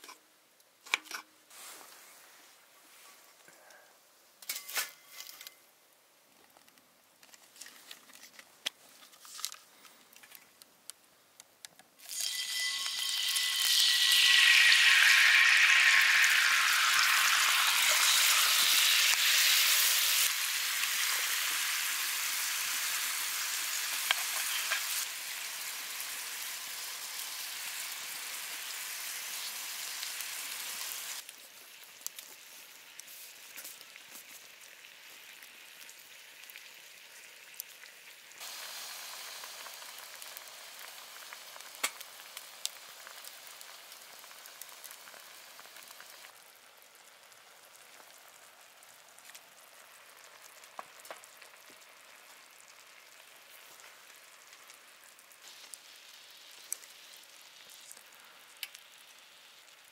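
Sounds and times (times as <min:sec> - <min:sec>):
packaging crinkling: 0:07.3 - 0:10.5
food sizzling in hot pan: 0:12.0 - 0:59.9.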